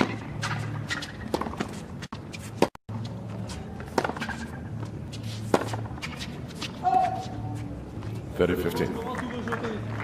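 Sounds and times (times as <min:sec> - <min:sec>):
tennis ball struck by rackets: 0:00.0 - 0:01.8, 0:03.9 - 0:04.6, 0:05.3 - 0:06.2.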